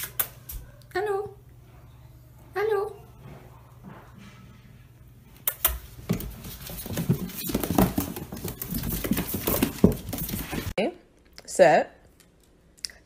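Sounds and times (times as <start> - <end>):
paws scrabbling on plastic: 5.9 - 10.7.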